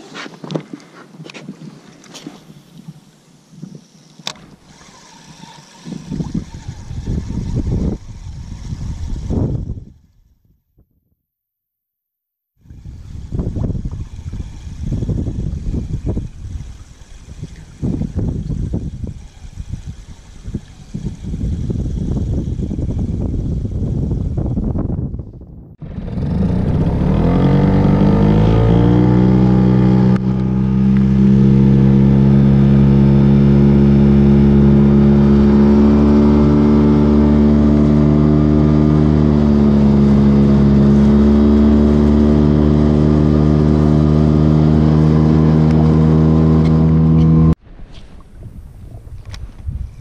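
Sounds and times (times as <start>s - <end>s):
small boat motor running: 4.2s - 10.3s, 12.6s - 24.7s, 25.8s - 47.6s.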